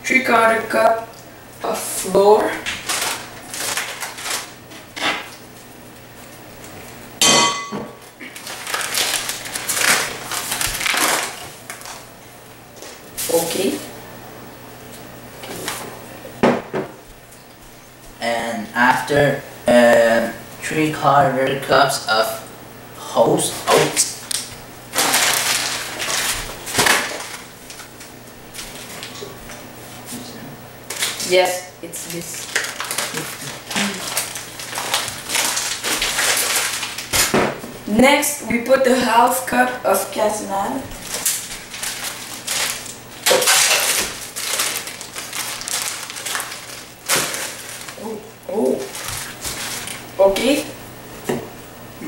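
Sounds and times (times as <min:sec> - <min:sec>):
packaging rustling and crinkling: 0:02.6 - 0:05.4, 0:08.1 - 0:12.1, 0:24.3 - 0:29.2, 0:30.9 - 0:31.3, 0:32.0 - 0:37.4, 0:40.9 - 0:50.1.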